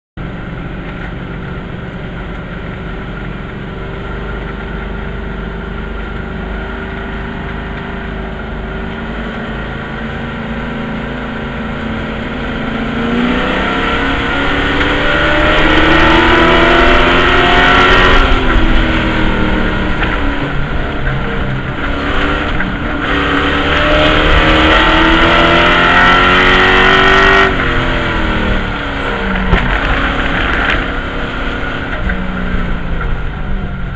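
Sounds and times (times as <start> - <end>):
truck engine accelerating: 0.2 - 33.9.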